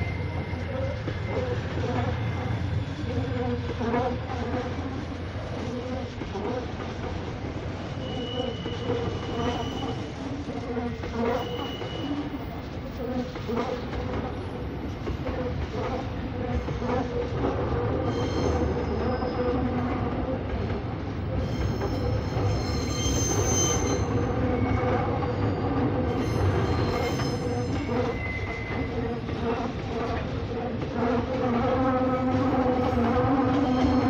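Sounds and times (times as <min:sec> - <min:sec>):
high-pitched wheel squeals: 0:00.0 - 0:03.6, 0:07.9 - 0:10.2, 0:11.2 - 0:12.6, 0:18.0 - 0:19.8, 0:21.4 - 0:29.4, 0:32.8 - 0:34.0
freight train rumbling past: 0:00.0 - 0:34.0.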